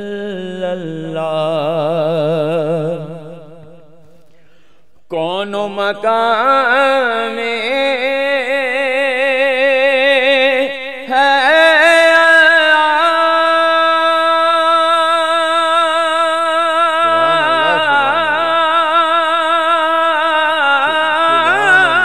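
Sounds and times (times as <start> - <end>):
man singing into microphone: 5.1 - 22.0
lower voice singing: 14.9 - 22.0.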